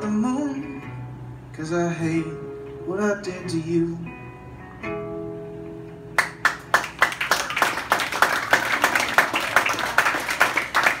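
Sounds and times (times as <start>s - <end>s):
audience clapping: 6.2s - 11.0s.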